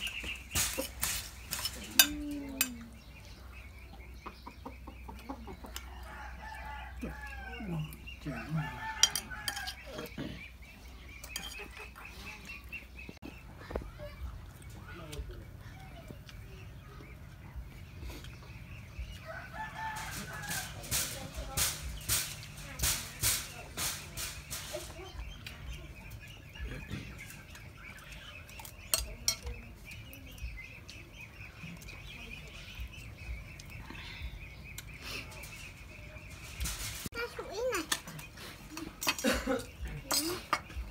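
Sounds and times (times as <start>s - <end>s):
spoons clinking against plates: 0.0s - 2.9s, 8.8s - 10.1s, 11.2s - 11.8s, 28.5s - 29.6s, 38.8s - 40.8s
high chirping: 0.0s - 6.8s
spoons clinking on ceramic: 1.5s - 2.8s, 9.0s - 9.8s, 28.9s - 29.4s.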